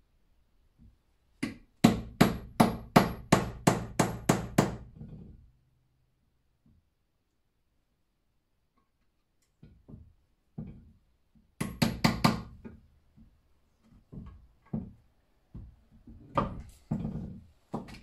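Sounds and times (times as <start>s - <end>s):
hammer knocking on metal: 1.8s - 4.9s.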